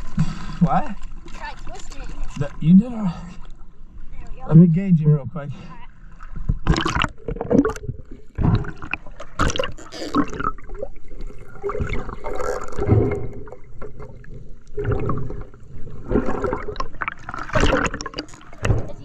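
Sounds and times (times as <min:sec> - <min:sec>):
underwater gurgling and sloshing: 0:00.0 - 0:19.0
underwater knocks and clicks: 0:06.4 - 0:19.0.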